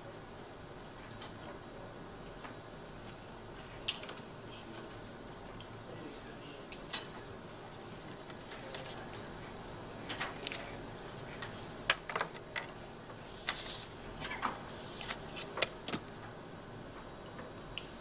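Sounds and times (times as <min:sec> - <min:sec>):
paper sliding and rustling: 0:13.3 - 0:14.0, 0:14.7 - 0:16.0.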